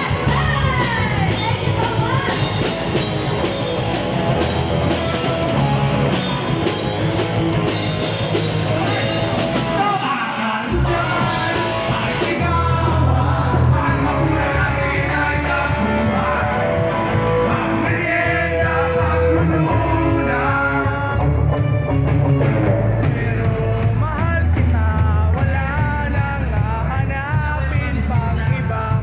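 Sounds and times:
live rock band playing: 0:00.0 - 0:29.0
man singing into a microphone: 0:09.8 - 0:21.5, 0:22.9 - 0:29.0.

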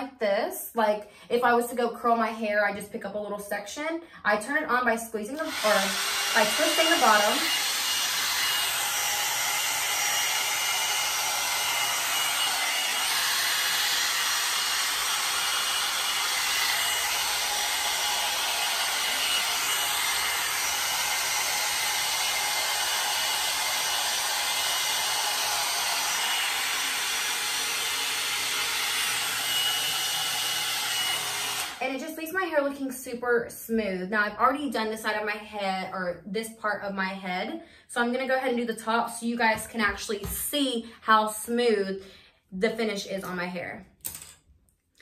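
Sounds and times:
hot-air dryer brush blowing: 0:05.4 - 0:32.1.

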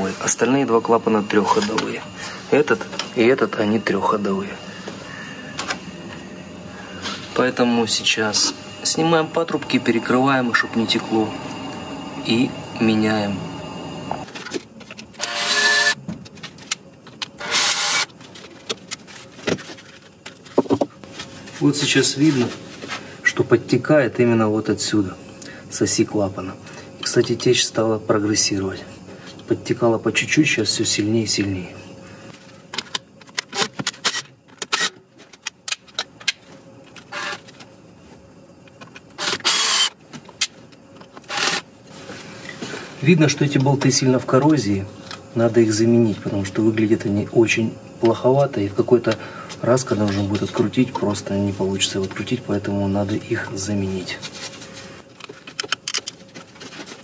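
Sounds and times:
cordless drill whirring: 0:15.2 - 0:16.0, 0:17.4 - 0:18.1, 0:37.1 - 0:37.4, 0:39.2 - 0:40.0, 0:41.3 - 0:41.6
power tool running: 0:15.2 - 0:16.0, 0:17.4 - 0:18.1, 0:37.1 - 0:37.4, 0:39.2 - 0:40.0, 0:41.3 - 0:41.6.

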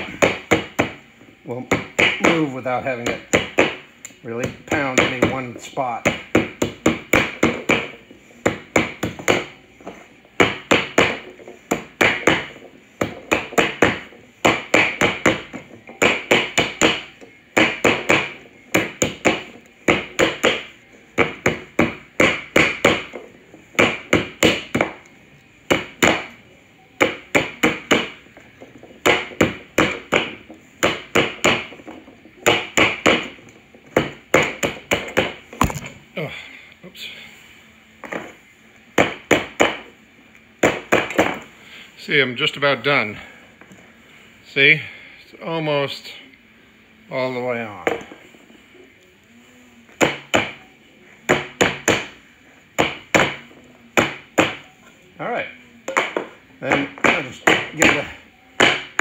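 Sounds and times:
rubber mallet striking a tire: 0:04.4 - 0:09.5, 0:10.4 - 0:23.2, 0:34.0 - 0:36.0.

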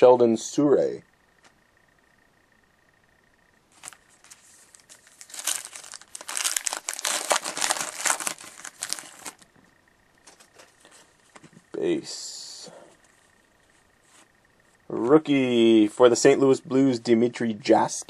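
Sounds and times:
wrapper tearing and crinkling: 0:03.7 - 0:09.4.

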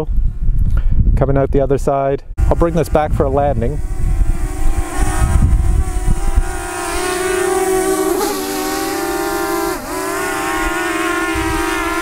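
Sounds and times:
drone propellers whining: 0:02.4 - 0:12.0.

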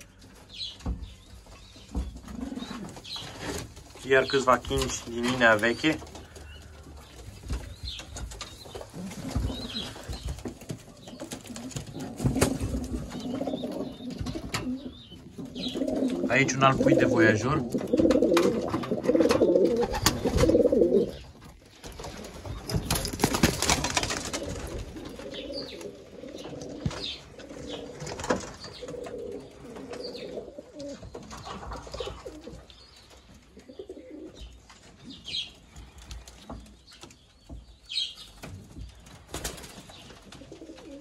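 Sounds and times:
pigeons cooing: 0:01.7 - 0:36.4, 0:40.2 - 0:41.0
wings fluttering: 0:17.9 - 0:30.2.

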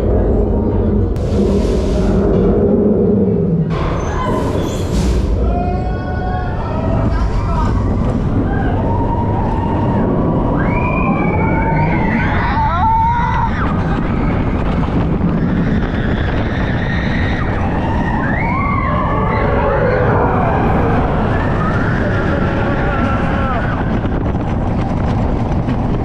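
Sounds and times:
rushing air: 0:00.0 - 0:12.0
high rising and falling wails: 0:00.0 - 0:24.0
roller coaster train rumbling: 0:00.0 - 0:26.0.

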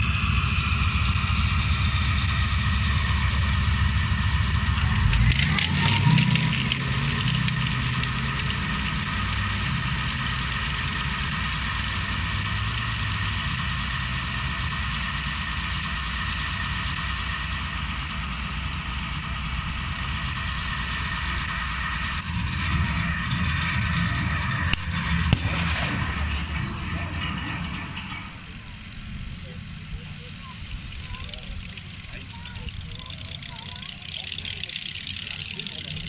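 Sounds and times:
model tanks droning and whining: 0:00.0 - 0:36.0
sharp crack: 0:22.1 - 0:28.9.

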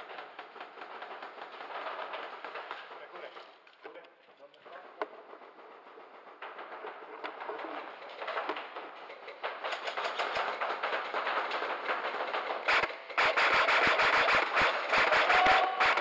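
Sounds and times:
rapid crackle of clicks: 0:00.0 - 0:16.0
loud sharp bangs: 0:06.3 - 0:16.0.

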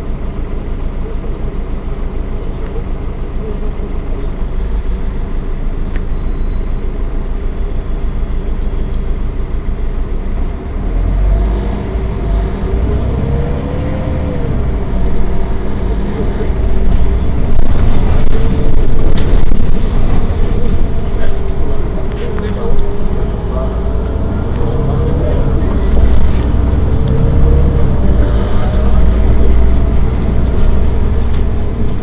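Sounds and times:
bus engine idling: 0:00.0 - 0:32.0.

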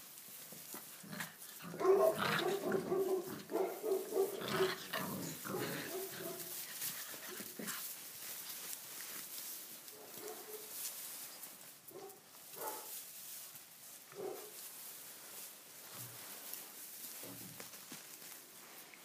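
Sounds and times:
puppies growling and yapping: 0:00.9 - 0:07.9.

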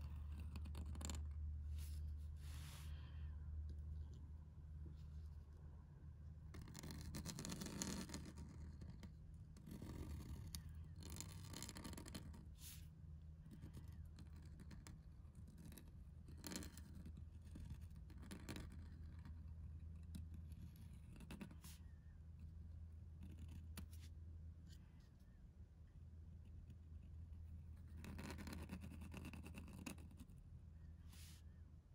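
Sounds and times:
pen nib scratching paper: 0:00.0 - 0:02.6, 0:06.5 - 0:12.8, 0:13.4 - 0:24.1, 0:26.6 - 0:30.4
steady low hum: 0:00.0 - 0:11.5.

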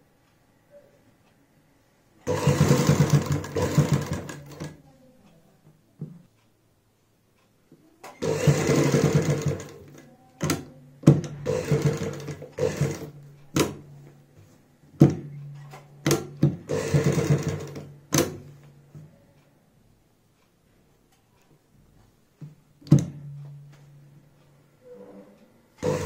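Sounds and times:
sewing machine stitching: 0:02.2 - 0:04.8, 0:08.0 - 0:13.8, 0:15.0 - 0:18.4, 0:25.8 - 0:26.0.

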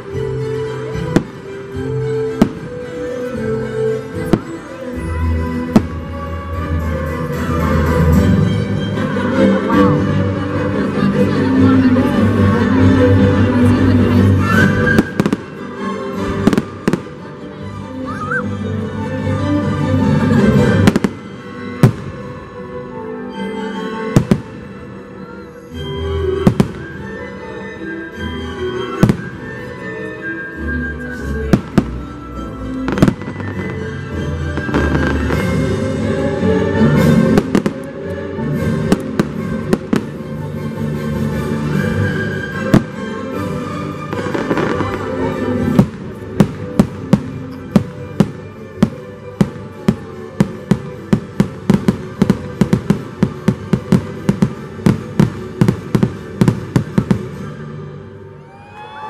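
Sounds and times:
show music: 0:00.0 - 0:59.0
fireworks bangs: 0:32.9 - 0:33.9, 0:34.5 - 0:35.8.

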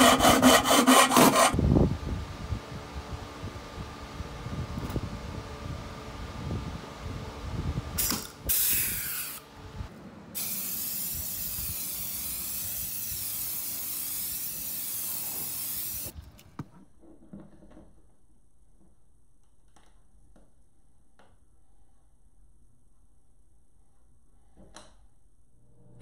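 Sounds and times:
aerosol can spraying: 0:08.0 - 0:09.4, 0:10.4 - 0:16.2
pneumatic rivet gun hissing: 0:08.0 - 0:09.4, 0:10.4 - 0:16.2.

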